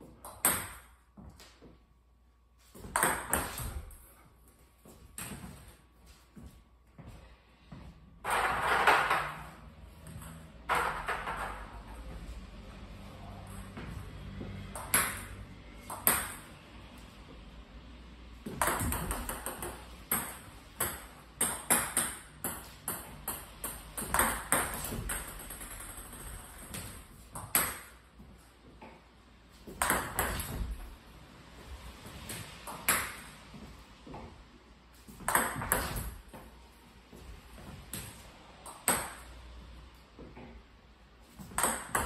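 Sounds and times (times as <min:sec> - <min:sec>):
ball bouncing on table: 0:14.6 - 0:16.5, 0:18.4 - 0:28.0, 0:29.7 - 0:30.9, 0:35.2 - 0:36.4, 0:37.9 - 0:39.3, 0:41.4 - 0:42.0
paddle striking table tennis ball: 0:18.5 - 0:27.9, 0:41.5 - 0:42.0.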